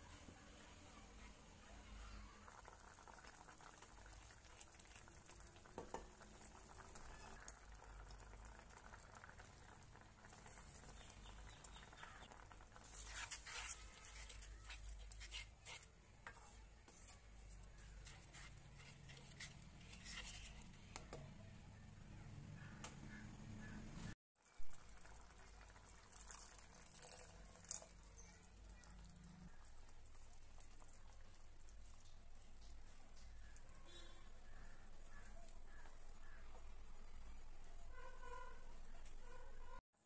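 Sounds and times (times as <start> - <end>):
light sizzling: 0.4 - 21.0
spatula scraping a pan: 12.2 - 20.9.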